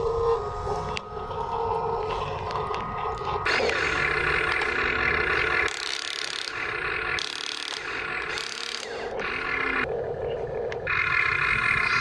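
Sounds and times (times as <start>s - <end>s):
electric gear motors whining: 0.0s - 12.0s.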